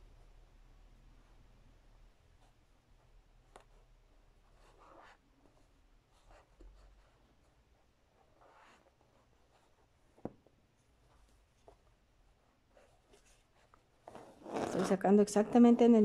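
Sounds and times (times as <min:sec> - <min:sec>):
thread drawn through fabric: 0:12.8 - 0:15.0.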